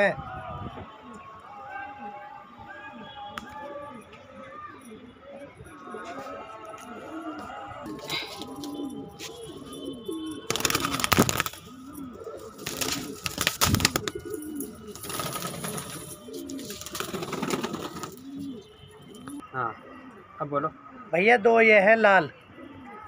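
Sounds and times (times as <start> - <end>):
pigeon cooing: 3.0 - 21.2
wing flapping: 8.0 - 19.4.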